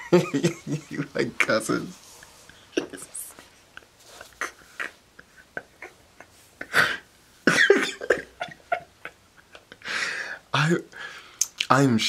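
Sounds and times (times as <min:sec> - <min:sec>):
person coughing breathily: 0:06.6 - 0:08.5.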